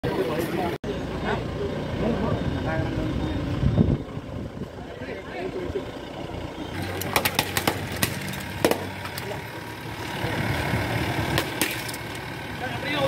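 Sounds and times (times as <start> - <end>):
vehicle engine idling: 0.0 - 13.0
coconuts cracking on asphalt: 6.8 - 9.5, 11.3 - 12.3.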